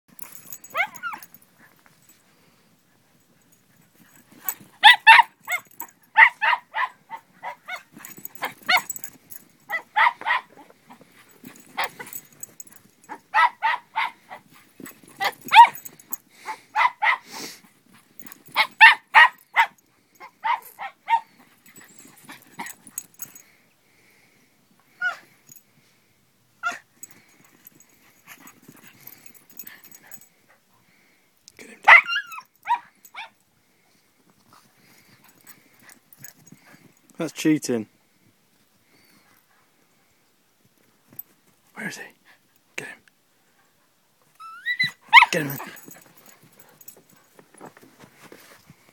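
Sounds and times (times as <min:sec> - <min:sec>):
dog barking: 0:06.2 - 0:08.8, 0:09.7 - 0:10.6, 0:13.1 - 0:14.4, 0:15.2 - 0:15.8, 0:16.7 - 0:17.3, 0:18.6 - 0:19.8, 0:31.9 - 0:33.3.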